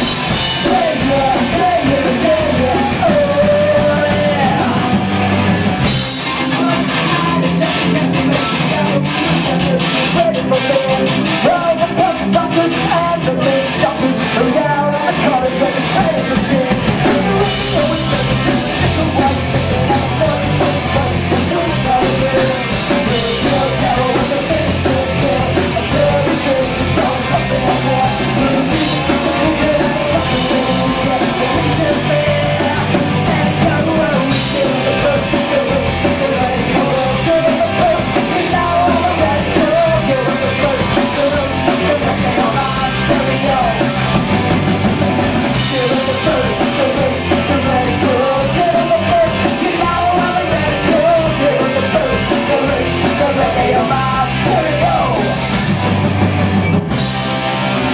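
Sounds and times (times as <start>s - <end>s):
bass guitar: 0.0s - 57.9s
drum kit: 0.0s - 57.9s
electric guitars: 0.0s - 57.9s.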